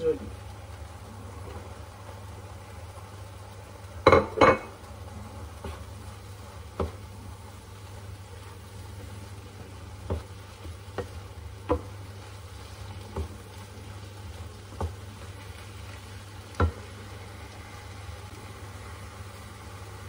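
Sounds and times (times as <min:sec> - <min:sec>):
meat sizzling in a frying pan: 0:00.0 - 0:20.0
wooden spatula knocking on pan: 0:04.0 - 0:04.7, 0:06.7 - 0:07.1, 0:10.0 - 0:12.0, 0:13.0 - 0:13.4, 0:14.7 - 0:15.1, 0:16.5 - 0:16.9.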